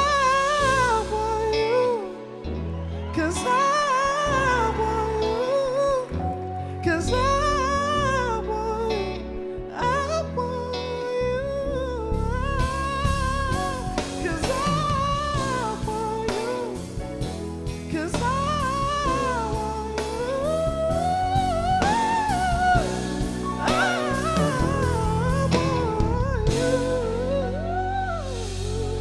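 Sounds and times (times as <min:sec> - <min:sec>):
live band playing slow song: 0:00.0 - 0:29.0
man singing long notes: 0:06.8 - 0:17.0, 0:17.9 - 0:29.0.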